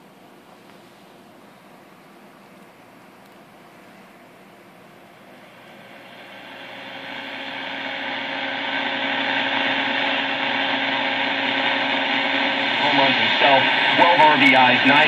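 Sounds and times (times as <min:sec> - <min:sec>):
faint hum: 0:00.0 - 0:15.0
radio static hiss: 0:05.4 - 0:15.0.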